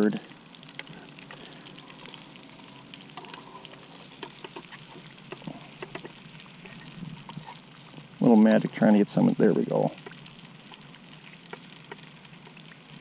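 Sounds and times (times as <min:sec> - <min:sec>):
fish frying in hot oil: 0:00.0 - 0:13.0.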